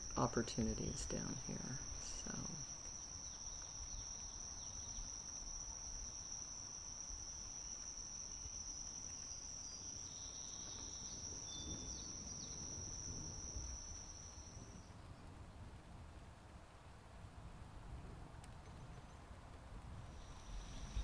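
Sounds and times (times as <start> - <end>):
insects trilling: 0.0 - 14.9, 20.0 - 21.0.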